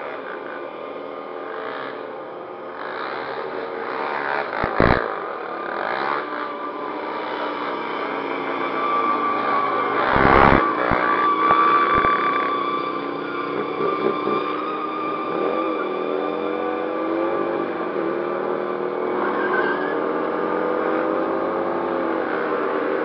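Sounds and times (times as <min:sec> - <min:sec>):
motorcycle engine revving: 0:02.8 - 0:08.2, 0:09.0 - 0:12.5.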